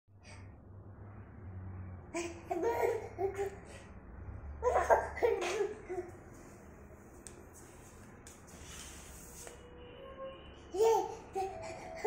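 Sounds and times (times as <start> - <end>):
toddler babbling and laughing: 4.6 - 6.2, 10.7 - 12.0.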